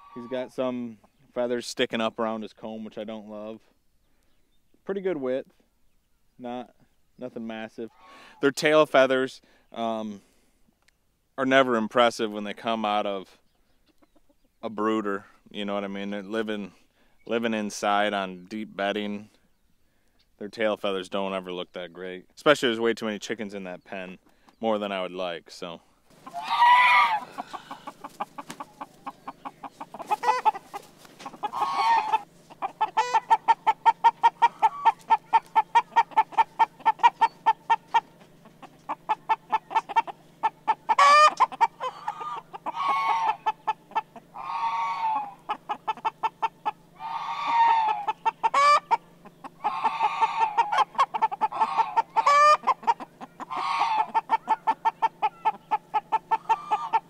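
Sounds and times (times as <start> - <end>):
chicken loud calls: 0.0 - 0.5, 7.9 - 8.5, 26.1 - 57.0
chickens clucking: 0.0 - 5.6, 6.4 - 20.2, 26.1 - 57.0.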